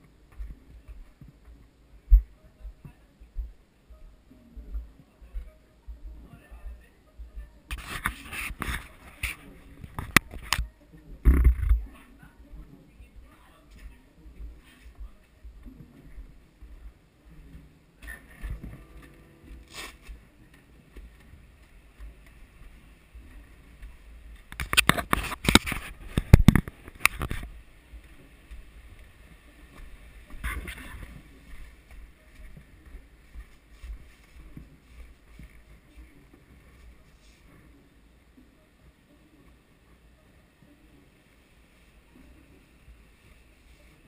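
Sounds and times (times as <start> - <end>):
camera handling rumble: 24.5 - 27.5.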